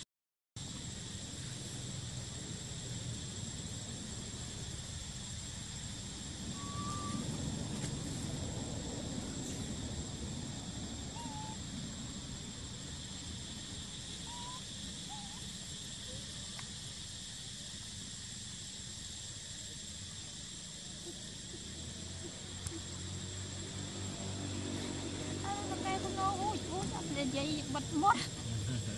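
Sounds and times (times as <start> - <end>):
high insect buzz: 0.6 - 28.9
low background rumble: 0.6 - 28.9
soft chirps: 6.4 - 7.4, 11.0 - 11.7, 13.3 - 19.0.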